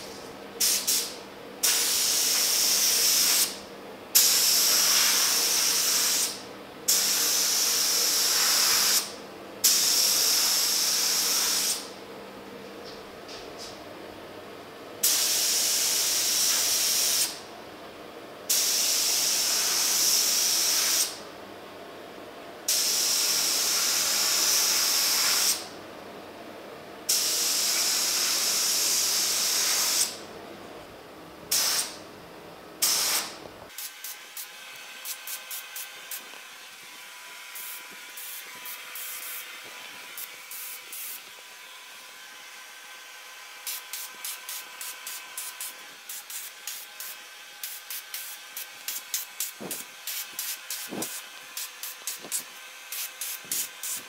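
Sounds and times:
spray gun hissing: 0.6 - 3.6, 4.2 - 11.9, 15.0 - 17.4, 18.5 - 21.2, 22.7 - 25.6, 27.1 - 30.2, 31.5 - 32.0, 32.8 - 36.3, 40.2 - 41.2, 43.6 - 54.0.

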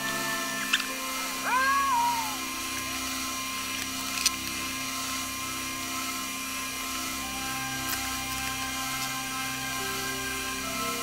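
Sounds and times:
high whining tones: 0.0 - 11.0
steady background hum: 0.0 - 11.0
plastic parts clicking together: 3.7 - 4.6.

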